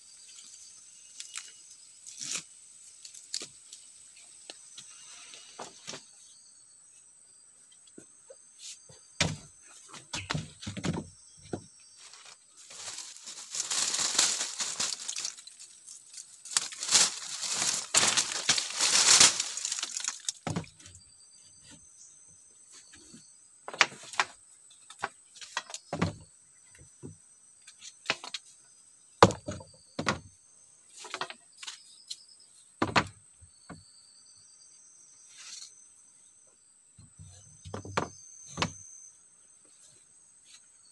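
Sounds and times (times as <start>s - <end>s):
insects shrilling: 0.0s - 5.6s, 11.9s - 20.7s.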